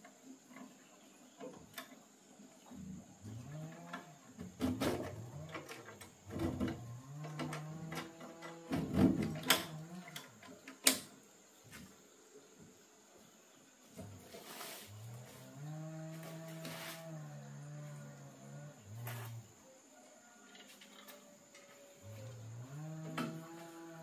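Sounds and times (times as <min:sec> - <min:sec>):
metal clanks and creaks: 0:03.4 - 0:10.9.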